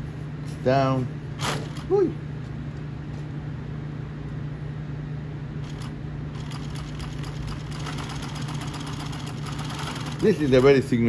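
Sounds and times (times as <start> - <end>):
sewing machine stitching: 5.6 - 10.9
sewing machine humming: 5.6 - 11.0.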